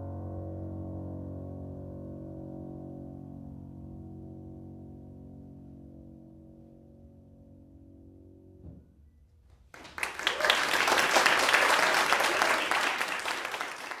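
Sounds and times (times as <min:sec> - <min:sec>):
audience applause: 0:09.8 - 0:14.0.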